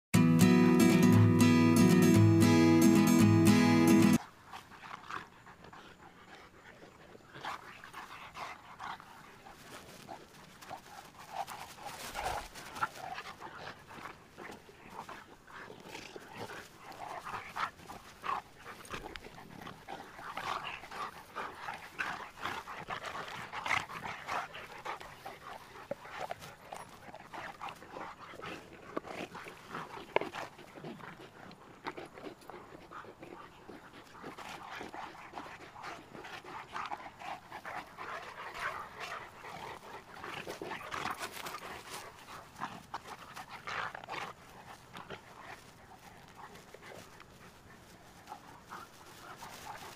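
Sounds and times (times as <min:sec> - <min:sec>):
dogs play-wrestling: 0:04.1 - 0:49.9.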